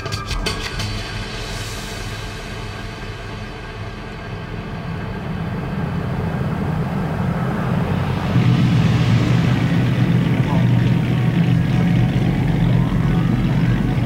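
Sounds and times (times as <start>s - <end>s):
boat engine rumbling: 3.2s - 14.0s.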